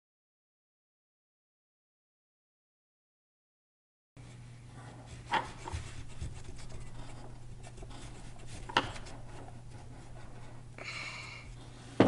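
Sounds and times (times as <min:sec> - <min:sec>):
steady low hum: 0:04.2 - 0:12.0
marker scratching on paper: 0:05.1 - 0:10.7.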